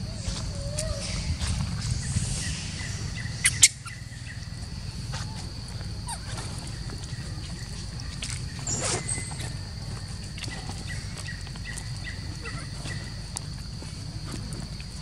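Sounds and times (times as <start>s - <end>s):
high-pitched insect drone: 0.0s - 6.1s
low rumble: 0.0s - 8.6s.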